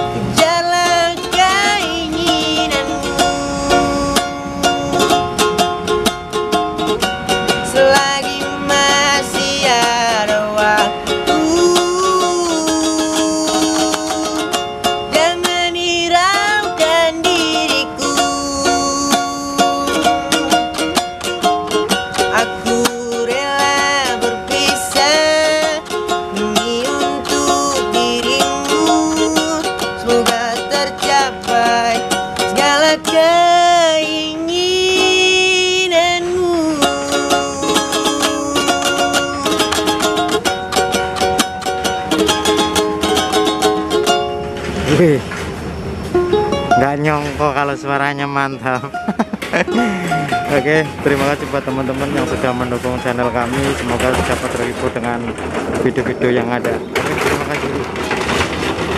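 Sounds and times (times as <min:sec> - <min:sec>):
strummed ukulele: 0:00.0 - 0:58.9
boy singing pop ballad: 0:07.8 - 0:14.4, 0:15.2 - 0:20.6, 0:22.3 - 0:39.8.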